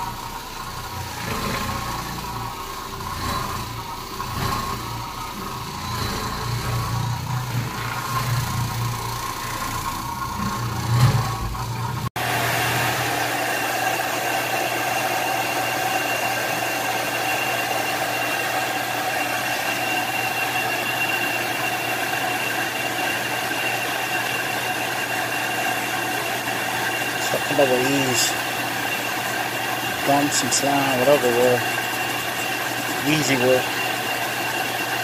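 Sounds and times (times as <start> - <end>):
machinery low hum: 0.0 - 13.1
machine whine with fixed tones: 0.0 - 35.0.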